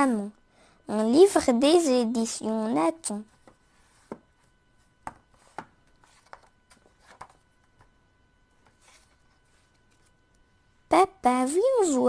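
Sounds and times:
book cover taps and clicks: 5.0s - 6.5s
page turning rustle: 5.1s - 8.0s, 8.6s - 10.2s.

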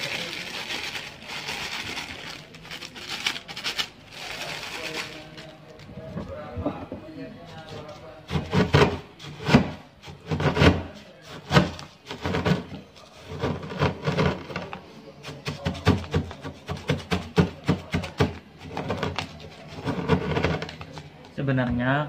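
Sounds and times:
rod pounding noodles in cup: 15.4s - 20.7s.

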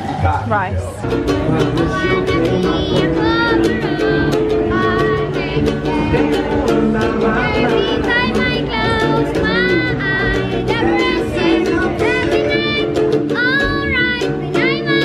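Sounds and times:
small guitar strumming: 1.0s - 15.0s
boy singing: 1.3s - 15.0s.

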